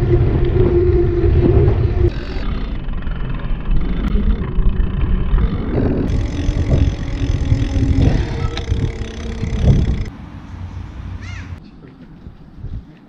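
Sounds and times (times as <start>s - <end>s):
wind on microphone: 0.0s - 2.7s, 5.3s - 10.1s, 12.2s - 13.0s
bike tyres rolling on pavement: 0.0s - 10.1s.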